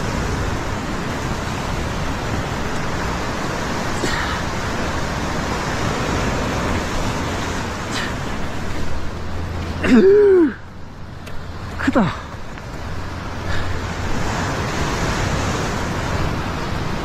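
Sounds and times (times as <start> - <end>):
ocean surf breaking over rocks: 0.0 - 17.0.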